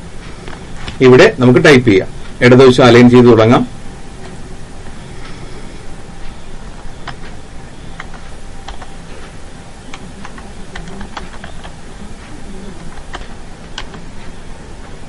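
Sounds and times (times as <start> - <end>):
low background hum: 0.0 - 15.0
keyboard keys clicking: 7.0 - 7.4, 8.0 - 8.9, 9.9 - 11.8, 12.7 - 14.1.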